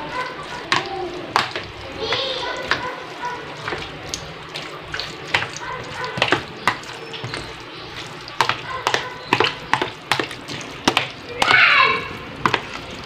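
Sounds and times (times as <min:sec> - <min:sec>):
wet squelching of pasta: 0:00.0 - 0:13.0.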